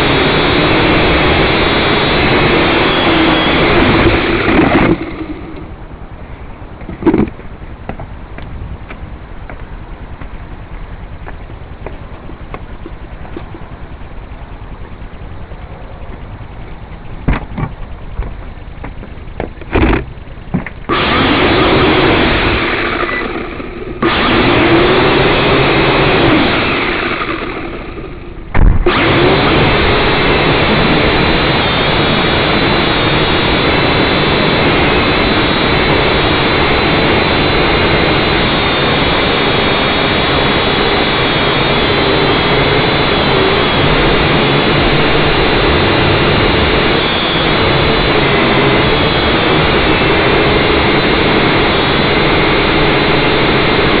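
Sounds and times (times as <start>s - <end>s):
drone propellers whirring: 0.0s - 54.0s
sharp knock: 28.5s - 28.9s.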